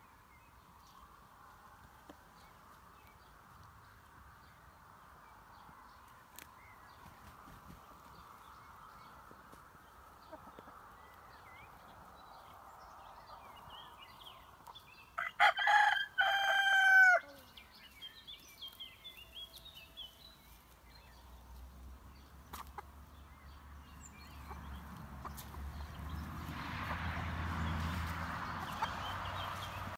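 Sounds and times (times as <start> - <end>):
rooster crowing: 15.2 - 17.4.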